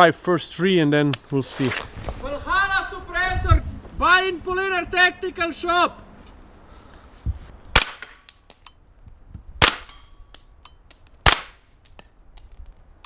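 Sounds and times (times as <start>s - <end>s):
suppressed rifle shots: 7.7s - 8.2s, 9.6s - 10.0s.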